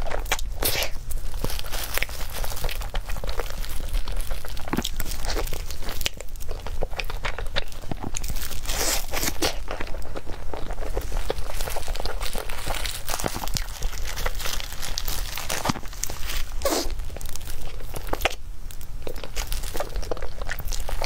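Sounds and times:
biting and chewing mouth sounds: 0:00.0 - 0:21.0.

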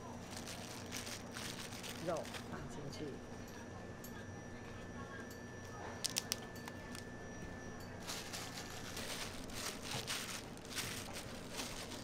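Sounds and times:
wrapping crinkling: 0:00.0 - 0:02.7, 0:06.0 - 0:07.0, 0:08.0 - 0:12.0.

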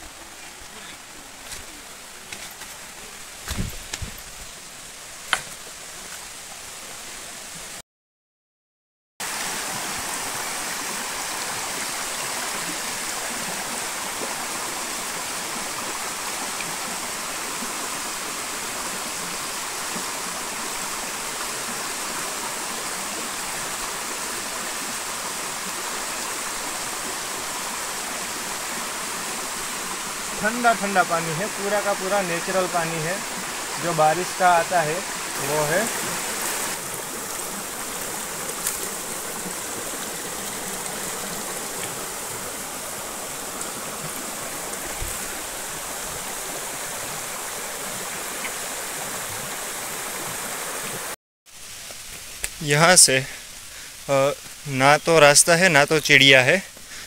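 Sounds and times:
water rushing over rocks: 0:00.0 - 0:07.8, 0:09.2 - 0:57.0
footsteps on loose stones: 0:01.4 - 0:04.5.

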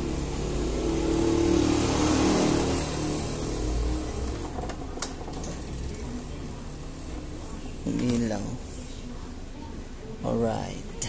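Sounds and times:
scooter engine revving and idling: 0:00.0 - 0:08.5.

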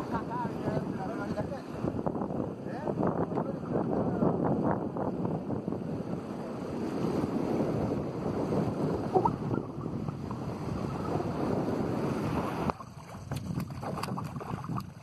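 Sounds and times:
wind buffeting microphone: 0:00.0 - 0:15.0
water lapping the shore: 0:05.8 - 0:15.0
fish splashing at surface: 0:12.7 - 0:15.0.

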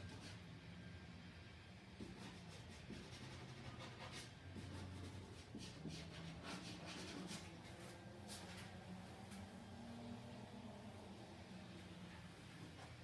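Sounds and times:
drawing tool scratching paper: 0:02.0 - 0:07.9.

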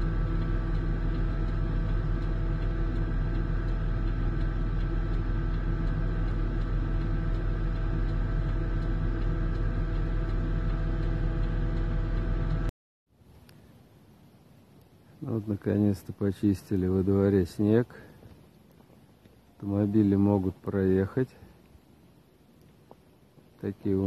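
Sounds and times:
snowblower engine droning: 0:00.0 - 0:12.7.

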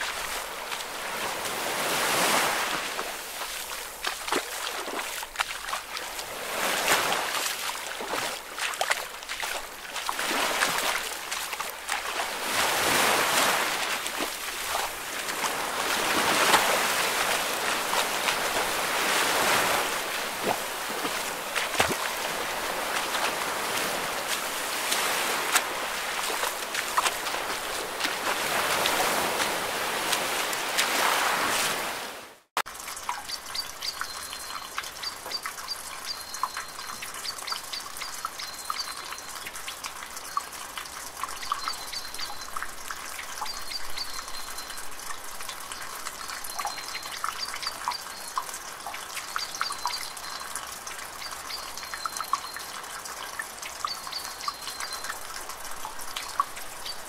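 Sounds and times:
ocean waves washing in: 0:00.0 - 0:08.8, 0:09.8 - 0:32.4.

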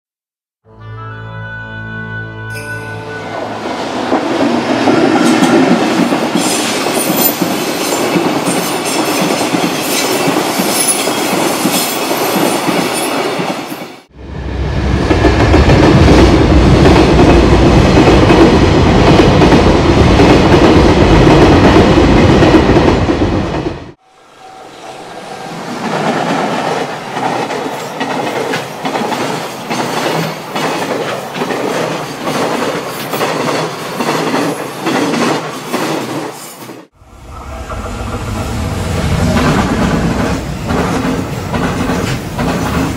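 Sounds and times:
freight train rumbling past: 0:02.4 - 0:42.9
clickety-clack of wheels on rail joints: 0:04.0 - 0:14.0, 0:25.8 - 0:36.9, 0:39.0 - 0:42.9.

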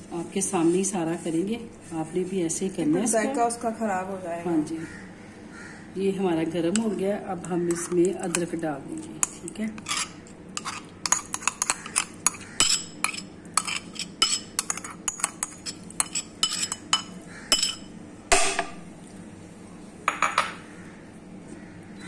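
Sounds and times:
metal spoon scraping ceramic bowl: 0:07.7 - 0:17.9.

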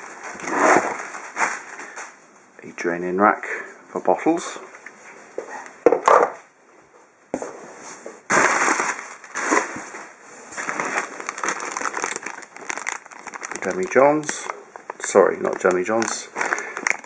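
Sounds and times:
cardboard rustling: 0:07.9 - 0:14.0
plastic packaging crinkling: 0:08.3 - 0:17.0.

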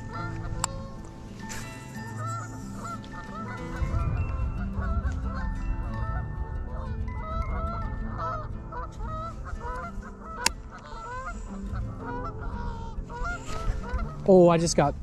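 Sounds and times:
chorus of honking calls: 0:00.0 - 0:14.2
wind rumble on microphone: 0:02.8 - 0:15.0.

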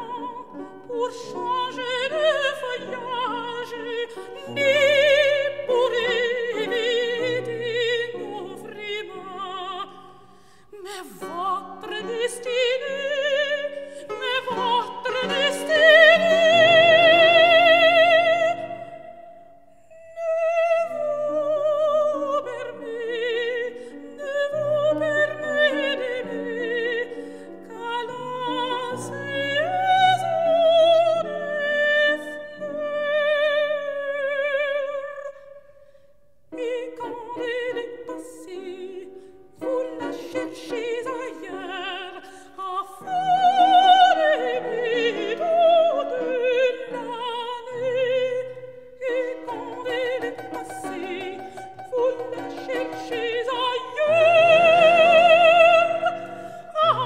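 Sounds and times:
operatic soprano singing: 0:00.0 - 0:35.8, 0:36.5 - 0:57.0
piano accompaniment: 0:36.6 - 0:57.0.

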